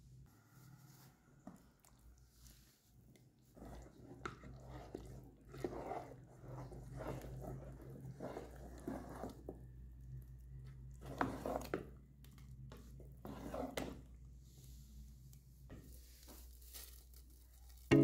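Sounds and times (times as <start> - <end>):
paste squelching: 1.4 - 14.3.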